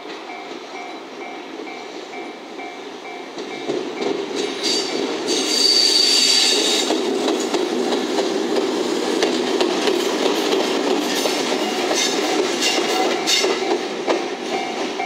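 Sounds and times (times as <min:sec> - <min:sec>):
high wheel squeal: 0:04.5 - 0:06.8
locomotive wheels clacking: 0:06.6 - 0:15.0.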